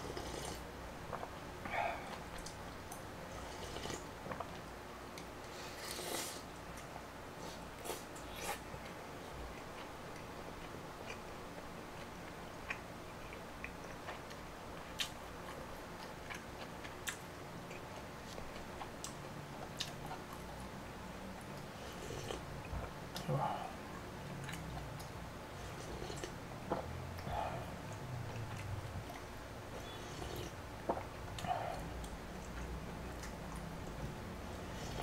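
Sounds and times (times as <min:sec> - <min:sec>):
person chewing: 0:12.0 - 0:20.5, 0:24.4 - 0:34.0.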